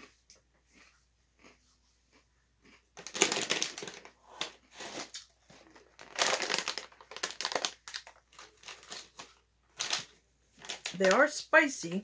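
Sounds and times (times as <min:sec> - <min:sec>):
snack wrapper crinkling: 0:02.6 - 0:11.4.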